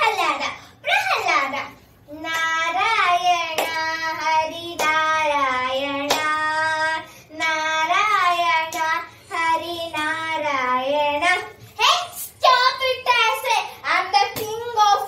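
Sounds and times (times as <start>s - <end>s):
sharp hand claps: 3.5s - 3.9s, 4.8s - 5.1s, 6.0s - 6.4s.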